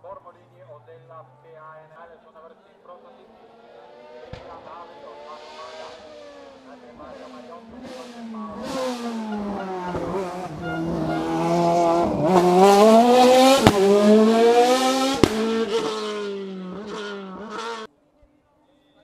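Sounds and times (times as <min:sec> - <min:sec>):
race car engine accelerating: 0:03.1 - 0:17.9
tyre squeal: 0:08.7 - 0:11.9.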